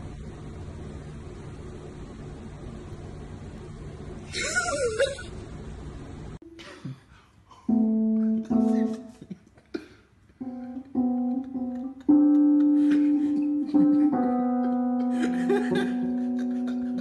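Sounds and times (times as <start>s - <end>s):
electronic keyboard notes: 7.7s - 9.2s, 10.4s - 17.0s.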